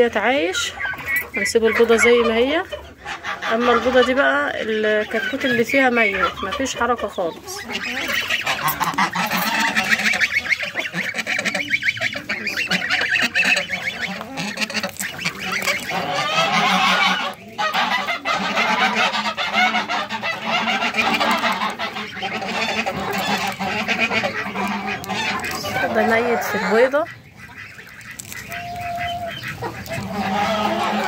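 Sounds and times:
geese and ducks honking: 0.0s - 31.0s.

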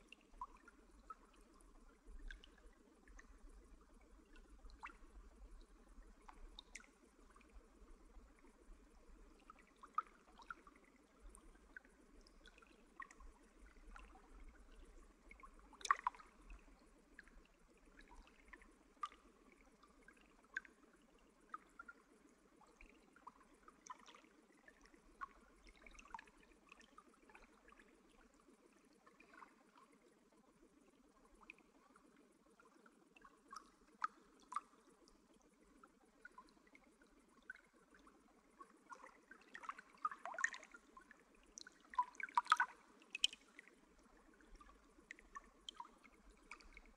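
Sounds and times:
faint trickling water: 0.0s - 46.9s
water drips and plinks: 0.1s - 20.7s, 36.2s - 46.9s.

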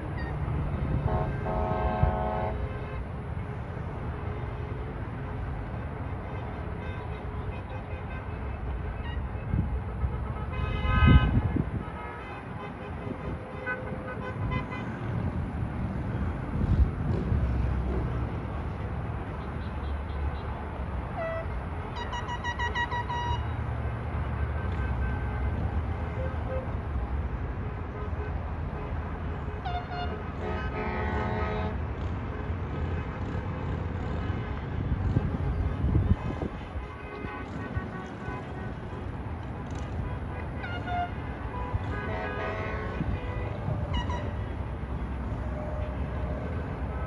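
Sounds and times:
highway traffic rumble: 0.0s - 47.0s
distant vehicle horns tooting: 1.1s - 2.6s, 21.2s - 23.6s, 29.6s - 31.8s, 39.8s - 44.6s.

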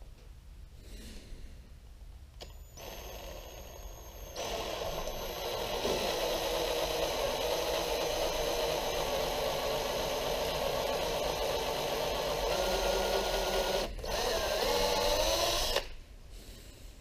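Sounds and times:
power drill whining: 2.4s - 16.0s.

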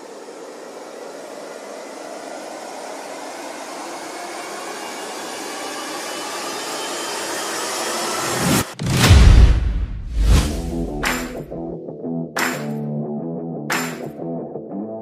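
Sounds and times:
white-noise riser effect: 0.0s - 11.6s.

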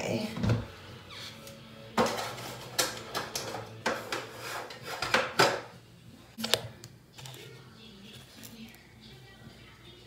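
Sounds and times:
plastic scraping on countertop: 2.0s - 5.6s.

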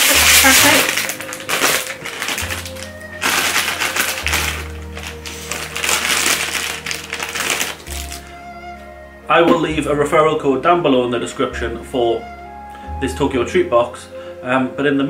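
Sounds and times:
plastic wrapper crinkling: 0.0s - 8.3s
background music with bass line: 0.0s - 15.0s.

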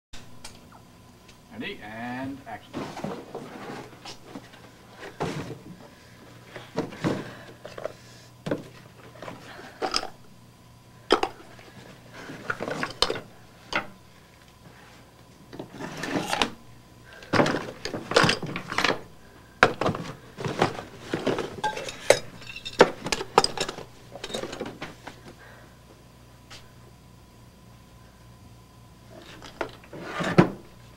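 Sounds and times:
metal tools clinking on workbench: 21.6s - 24.6s.

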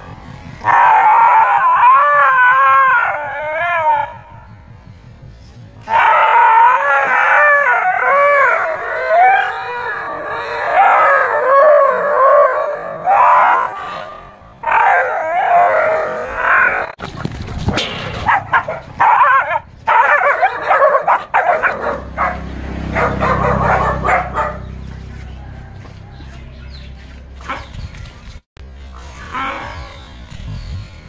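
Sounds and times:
young dog howling and screaming: 0.6s - 4.3s, 5.8s - 17.0s, 18.4s - 22.0s.

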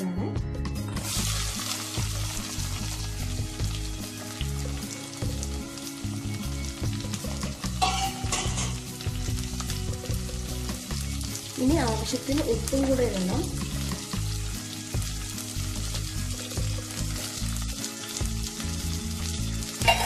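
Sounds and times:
onions sizzling in hot oil: 0.8s - 20.0s
spoon stirring in pot: 19.8s - 20.0s.

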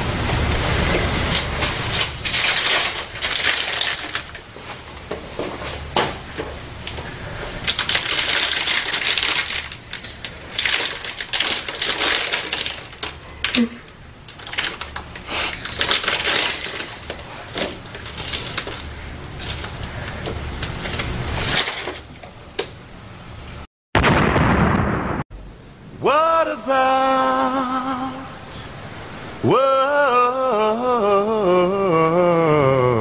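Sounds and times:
crinkly packaging crackling: 1.9s - 4.8s, 7.0s - 22.1s.

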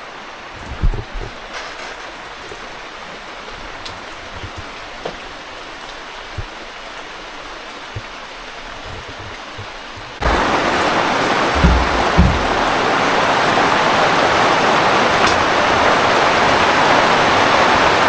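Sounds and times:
steady rain hiss: 0.0s - 18.0s
faint drips and knocks: 0.6s - 12.9s.

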